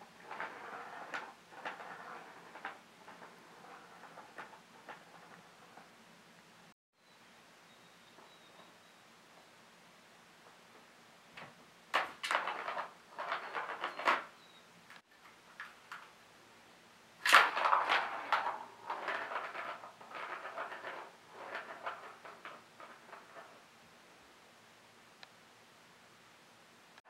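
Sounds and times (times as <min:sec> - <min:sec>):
ball rattling around plastic track: 0:00.0 - 0:06.0, 0:11.4 - 0:14.3, 0:15.1 - 0:16.2, 0:17.2 - 0:23.7.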